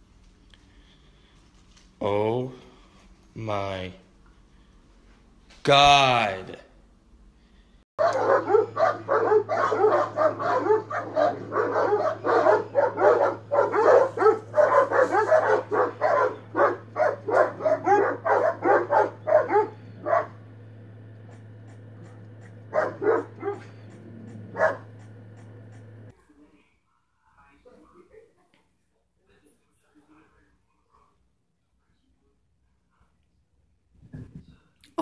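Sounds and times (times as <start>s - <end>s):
low steady hum: 0.0s - 35.0s
dogs barking: 8.0s - 26.1s.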